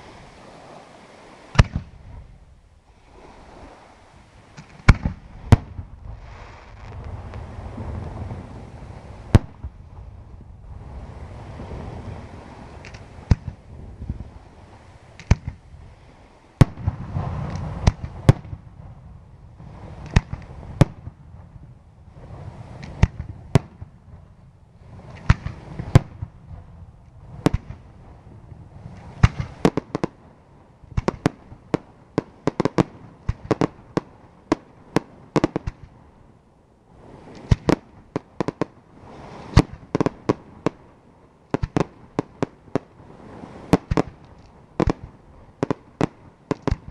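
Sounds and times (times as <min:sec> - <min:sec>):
low rumble: 0:05.1 - 0:12.3.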